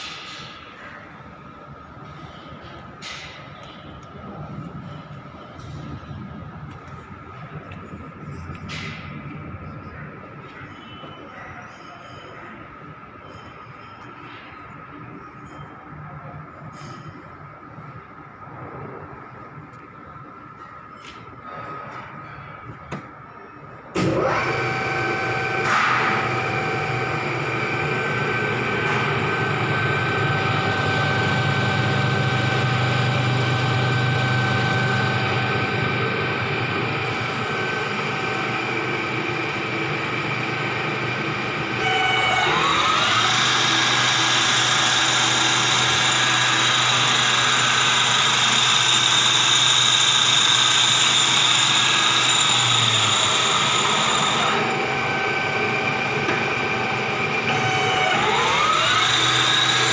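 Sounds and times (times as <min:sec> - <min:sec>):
lathe humming and whining: 0:16.8 - 0:59.9.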